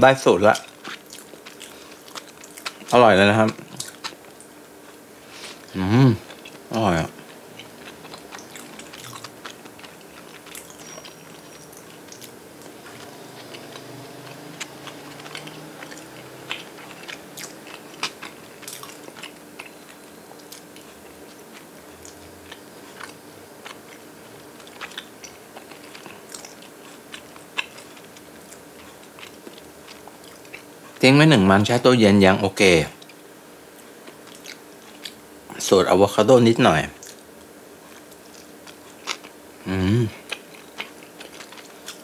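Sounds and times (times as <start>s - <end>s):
faint steady hum: 0.0s - 42.0s
person chewing food: 0.5s - 31.0s, 33.0s - 35.2s, 37.0s - 42.0s
onion crunching: 6.3s - 30.7s.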